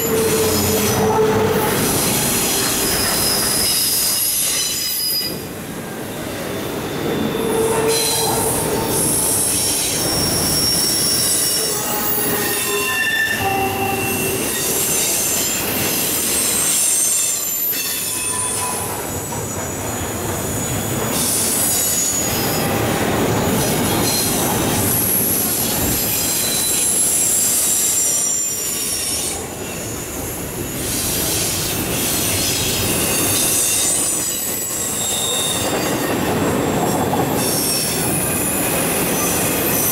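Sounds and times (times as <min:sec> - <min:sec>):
high-pitched wheel squeals: 0:00.0 - 0:05.4, 0:06.9 - 0:19.6, 0:32.2 - 0:36.2
steel wheels rumbling on rail: 0:00.0 - 0:39.9.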